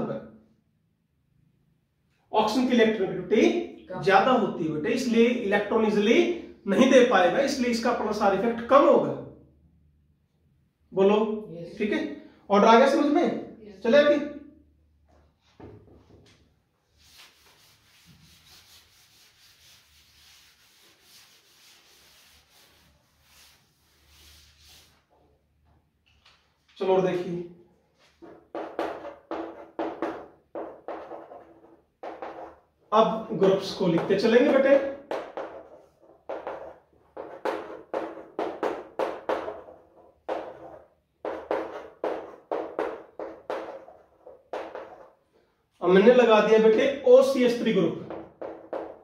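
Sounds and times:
cloth wiping chalkboard: 15.3 - 25.8, 27.9 - 45.4, 47.2 - 49.0.

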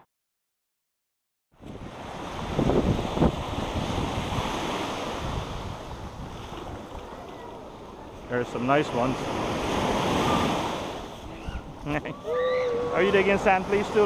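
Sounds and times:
wind buffeting microphone: 1.6 - 7.5
waves washing up a beach: 1.6 - 14.0.

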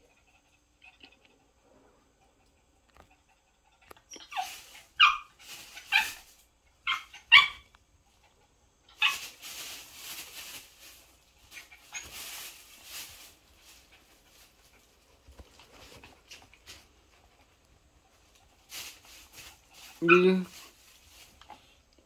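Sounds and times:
small dog yipping: 4.0 - 6.2, 6.8 - 7.7, 8.9 - 9.3, 20.0 - 20.4
plastic bag crinkling: 9.0 - 14.6.

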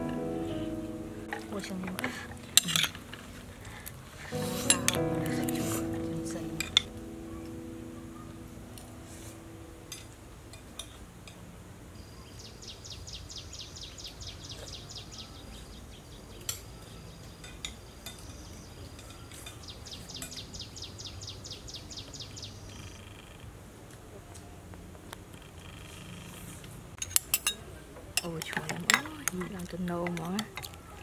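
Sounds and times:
spoons clicking against plates: 27.0 - 30.8.

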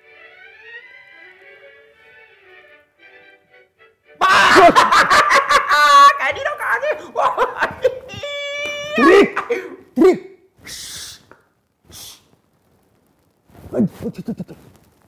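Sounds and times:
man hushing: 4.2 - 4.9, 5.7 - 12.3
man making cat-like cries: 4.2 - 11.2.

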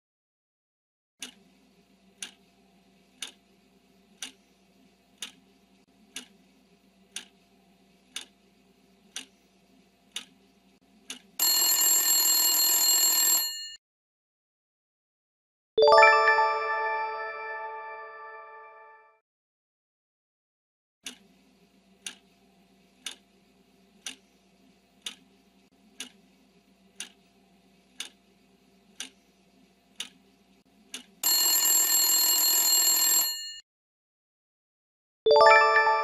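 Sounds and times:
clock ticking: 1.2 - 1.4, 2.2 - 2.4, 3.2 - 3.4, 4.2 - 4.4, 5.2 - 5.4, 6.1 - 6.4, 7.1 - 7.4, 8.1 - 8.4, 9.1 - 9.4, 10.1 - 10.4, 11.1 - 11.4, 21.0 - 21.2, 22.0 - 22.2, 23.0 - 23.2, 24.0 - 24.2, 25.0 - 25.2, 26.0 - 26.2, 27.0 - 27.2, 28.0 - 28.2, 29.0 - 29.2, 30.0 - 30.2, 30.9 - 31.2
ringing alarm bell: 11.4 - 13.8, 31.2 - 33.6.

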